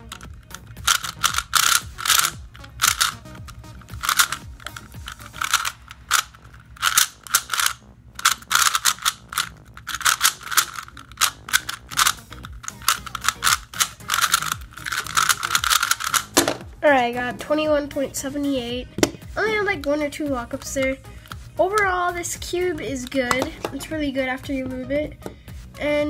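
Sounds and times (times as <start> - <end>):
puzzle cube clacking turns: 0.0 - 16.7, 20.6 - 23.9.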